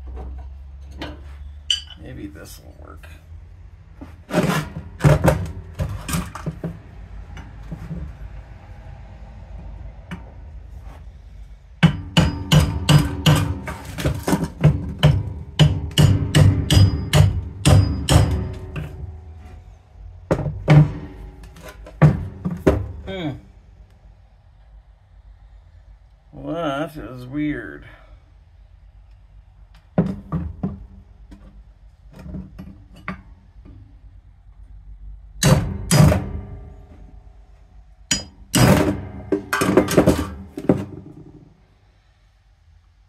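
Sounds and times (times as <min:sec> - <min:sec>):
metal-on-metal blows: 0:11.8 - 0:19.4, 0:35.4 - 0:37.1, 0:38.1 - 0:41.0.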